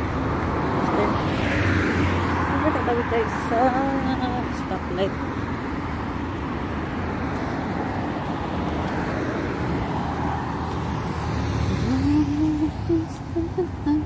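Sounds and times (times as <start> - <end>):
cars passing on street: 0.0 - 14.0.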